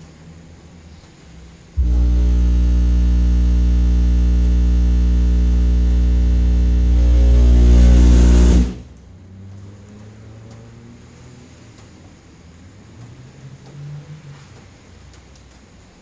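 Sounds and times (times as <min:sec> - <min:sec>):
subwoofer bass test tone: 0:01.8 - 0:08.9.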